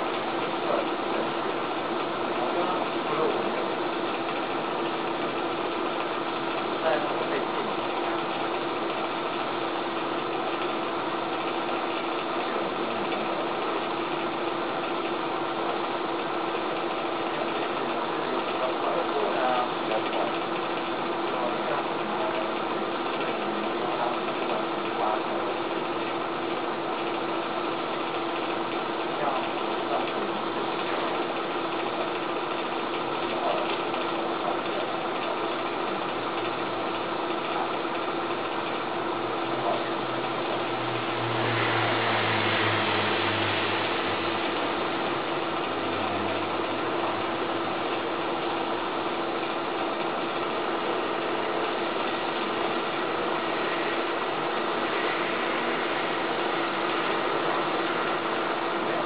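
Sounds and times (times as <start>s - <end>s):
small motor humming: 36.1s - 59.0s
hiss: 41.0s - 45.0s, 52.5s - 59.0s.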